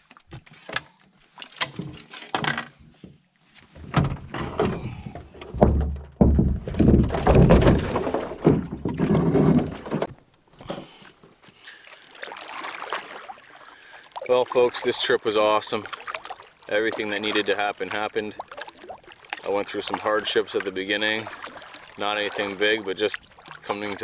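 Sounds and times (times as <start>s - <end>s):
rustling bumps and thuds: 1.6s - 11.0s.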